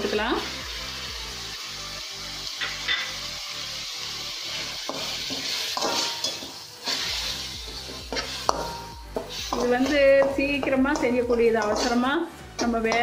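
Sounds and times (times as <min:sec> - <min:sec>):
food frying in oil: 0:00.0 - 0:13.0
metal spatula scraping pan: 0:02.6 - 0:03.1, 0:04.5 - 0:13.0.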